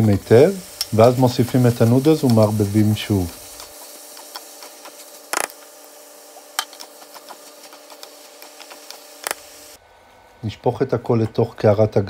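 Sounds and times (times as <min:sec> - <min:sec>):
wooden utensil scraping a wok: 0:01.0 - 0:09.8.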